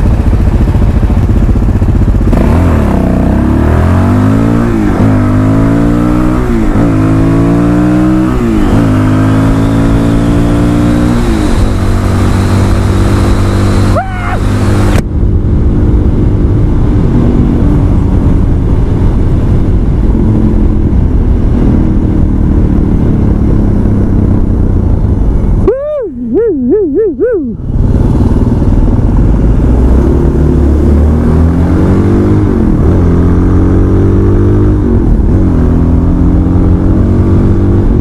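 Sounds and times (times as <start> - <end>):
wind rush: 0.0 - 26.5, 27.2 - 38.0
motorcycle engine running: 0.0 - 38.0
loud warbling tone: 13.8 - 14.7, 25.6 - 27.7.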